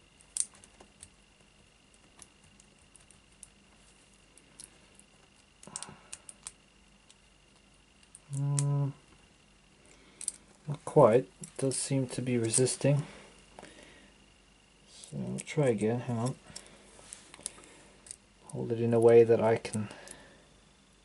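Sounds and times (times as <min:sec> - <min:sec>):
person humming: 0:08.2 - 0:09.0.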